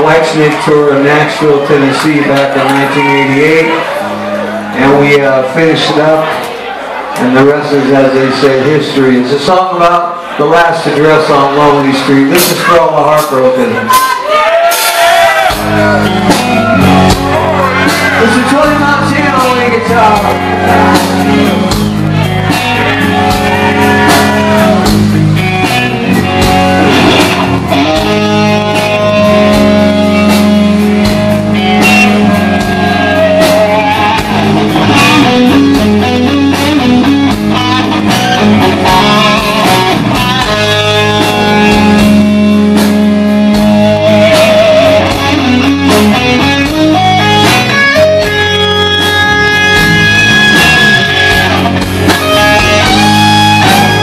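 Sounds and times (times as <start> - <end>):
bass guitar: 0.0 - 54.0
drums: 8.8 - 54.0
electric guitar vibrato notes: 15.6 - 54.0.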